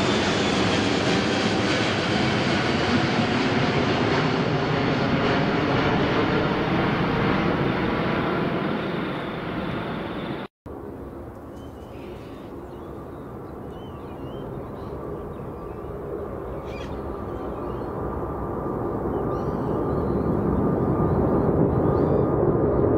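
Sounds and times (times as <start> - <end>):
jet engines at takeoff: 0.0 - 22.9
bird chirps: 11.5 - 18.0.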